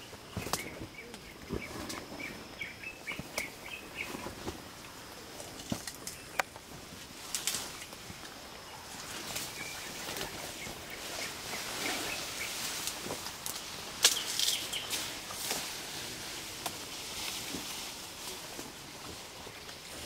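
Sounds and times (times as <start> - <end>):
bird chirping: 0.0 - 4.5, 9.4 - 12.8, 14.1 - 15.1
steady background hiss: 0.0 - 20.0.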